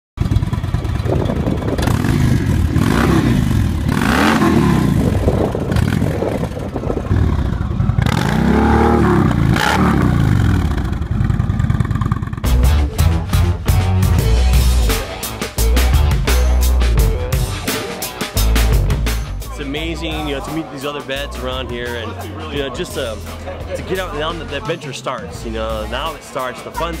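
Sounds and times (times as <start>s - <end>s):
motorcycles riding past: 0.2s - 12.5s.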